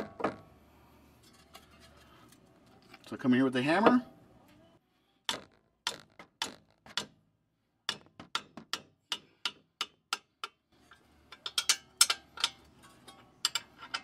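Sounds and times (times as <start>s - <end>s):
hammer striking metal wrench: 11.3s - 14.0s.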